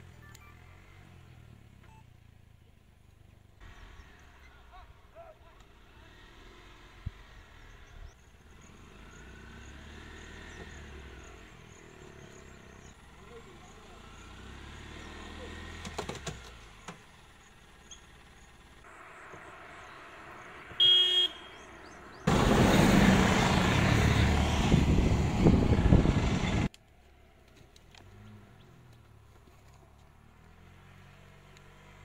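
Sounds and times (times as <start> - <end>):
vehicle horn toot: 20.8 - 21.7
vehicle engine running loudly: 21.8 - 26.7.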